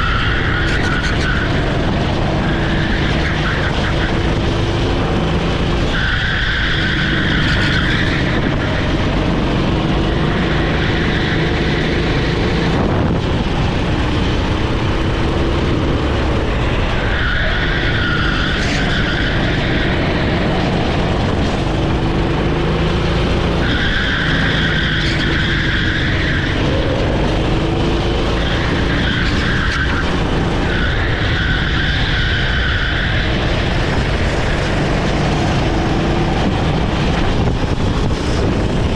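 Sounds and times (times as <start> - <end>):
tyres squealing: 0.0 - 4.7, 16.4 - 22.8, 23.5 - 37.4
kart engine revving: 0.0 - 38.9.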